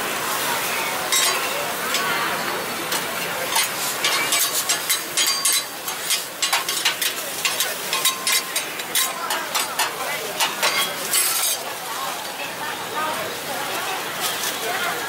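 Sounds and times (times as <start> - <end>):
food sizzling on a griddle: 0.0 - 15.0
metal spatula scraping griddle: 2.9 - 11.6.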